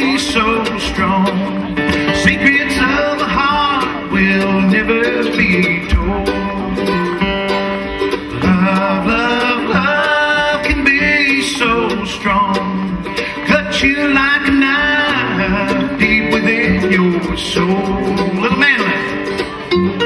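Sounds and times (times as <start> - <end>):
acoustic guitars strumming: 0.0 - 20.0
mandolin picking: 0.0 - 20.0
person singing: 0.0 - 20.0.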